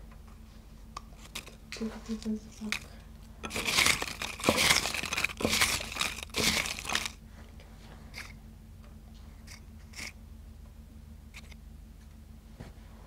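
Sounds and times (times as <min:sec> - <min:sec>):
paper crinkling and rustling: 0:01.2 - 0:07.2.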